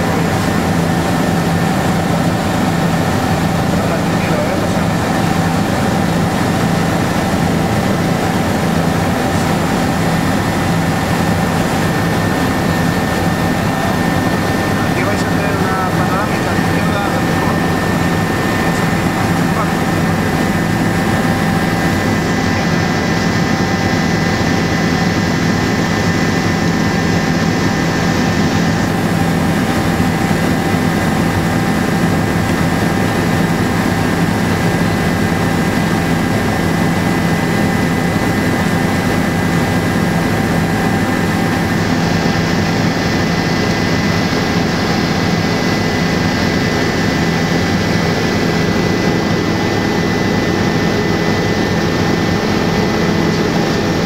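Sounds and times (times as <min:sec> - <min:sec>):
high whine: 0:00.0 - 0:35.0
helicopter engine and rotor drone: 0:00.0 - 0:54.0.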